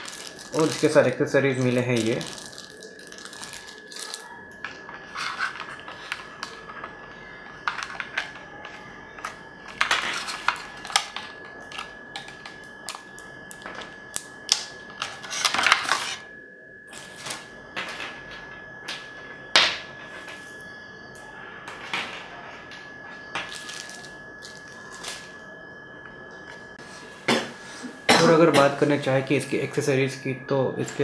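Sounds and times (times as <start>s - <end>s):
plastic packaging crinkling: 0.0s - 7.0s, 23.4s - 25.4s
faint high whine: 0.0s - 31.0s.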